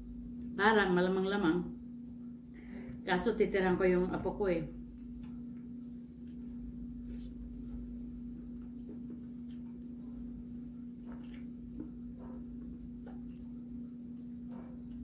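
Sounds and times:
steady low hum: 0.0 - 15.0
chewing and sucking fingers: 8.9 - 15.0.

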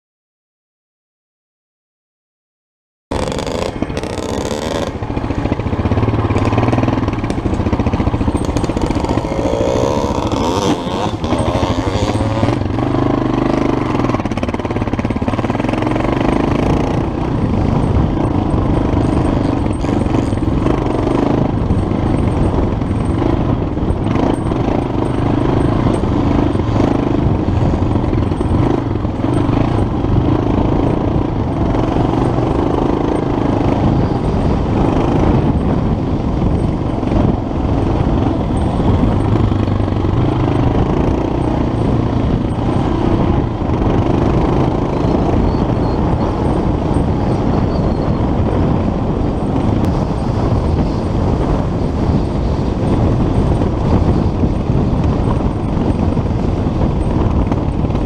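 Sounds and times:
motorcycle engine revving: 3.1 - 58.0.

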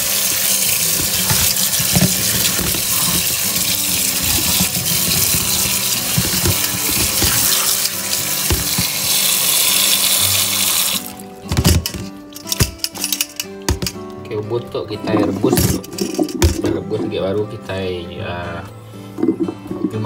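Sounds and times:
tap water running into colander: 0.0 - 12.8
pieces knocking against mesh: 11.4 - 14.0, 15.5 - 16.8.

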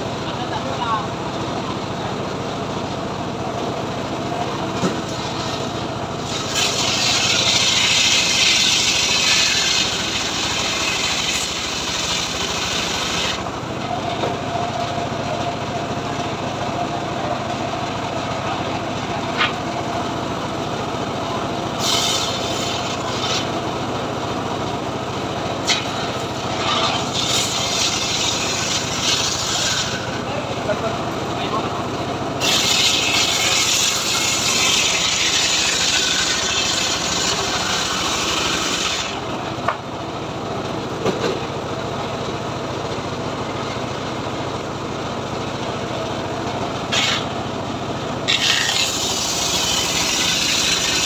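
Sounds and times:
circular saw engine running: 0.0 - 51.0
saw blade cutting log: 4.8 - 14.3, 21.7 - 23.6, 25.5 - 30.9, 32.4 - 39.8, 46.8 - 47.4, 48.2 - 51.0.

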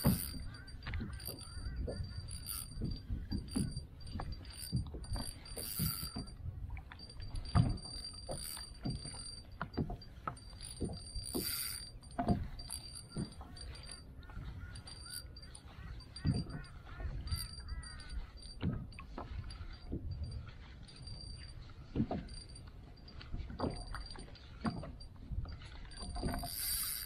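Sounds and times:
spinning reel clicking: 0.0 - 2.9, 4.5 - 6.4, 7.8 - 9.5, 10.6 - 14.0, 14.6 - 15.4, 26.3 - 27.0
knocks and clicks from kayak: 0.0 - 27.0
wind: 0.0 - 27.0.

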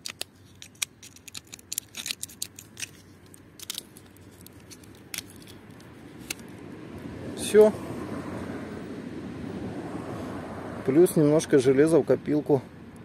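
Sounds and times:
utility knife cutting rubber hose: 0.0 - 6.4.

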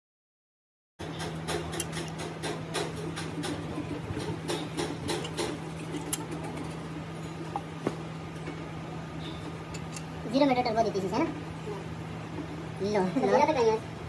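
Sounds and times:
hand tools clicking and tapping: 1.0 - 6.8
steady low hum: 1.0 - 14.0.

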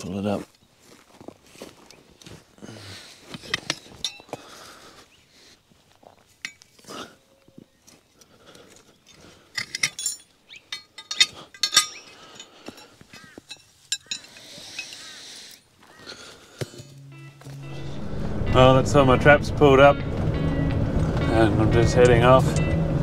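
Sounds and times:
ringing metal clinks: 3.6 - 4.4, 9.5 - 15.0.

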